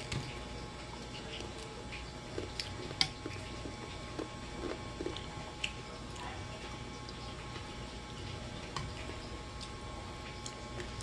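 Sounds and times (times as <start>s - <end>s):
person chewing: 0.0s - 6.2s.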